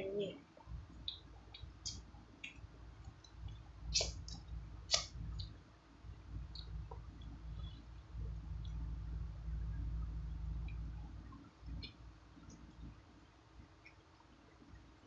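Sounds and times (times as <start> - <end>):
wet chewing mouth clicks: 3.2 - 5.5.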